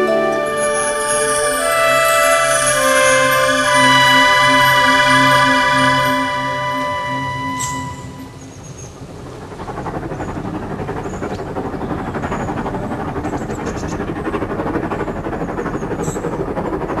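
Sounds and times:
steam train running: 0:00.0 - 0:17.0.

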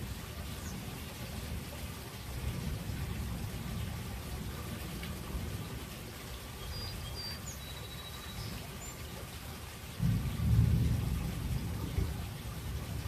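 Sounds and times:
steady rain falling: 0:00.0 - 0:13.0
thunder roll: 0:10.0 - 0:13.0.

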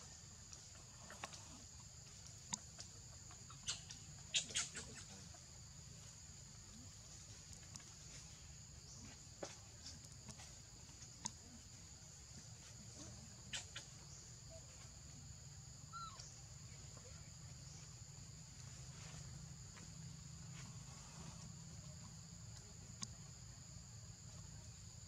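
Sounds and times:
high-pitched insect chorus: 0:00.0 - 0:25.0
faint clicks: 0:09.8 - 0:11.5, 0:22.5 - 0:23.3.

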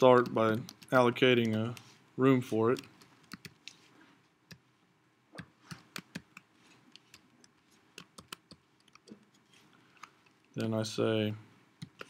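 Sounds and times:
keyboard typing: 0:00.1 - 0:01.9, 0:02.7 - 0:03.8, 0:05.4 - 0:09.2.

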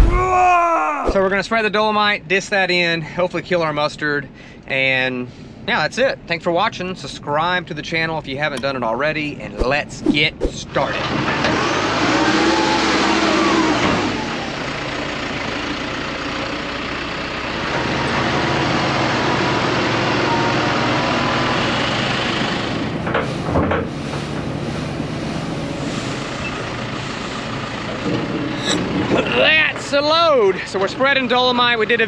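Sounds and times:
diesel engine revving: 0:10.9 - 0:29.4.

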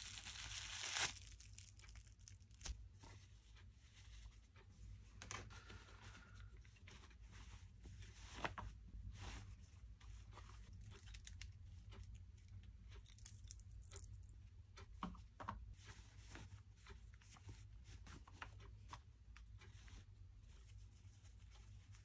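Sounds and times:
ball chain crinkle: 0:00.0 - 0:02.6
cloth rustling: 0:00.0 - 0:04.4.

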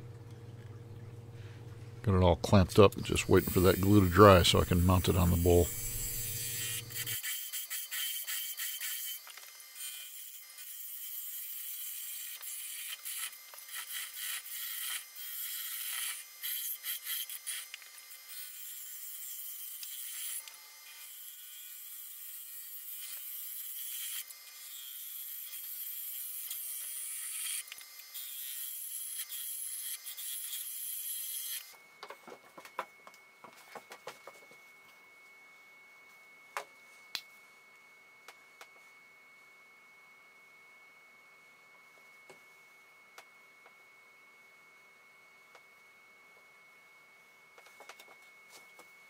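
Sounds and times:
gouge cutting wood on lathe: 0:03.2 - 0:27.6.

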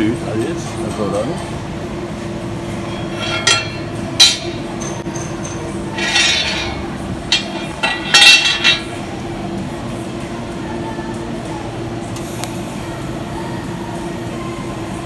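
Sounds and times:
steady low hum: 0:00.0 - 0:15.0
steel tubes clattering on metal table: 0:02.9 - 0:08.9.

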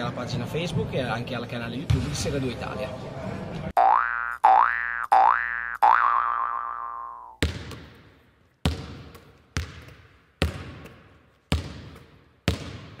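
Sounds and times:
basketball bouncing on hard court: 0:07.4 - 0:13.0.

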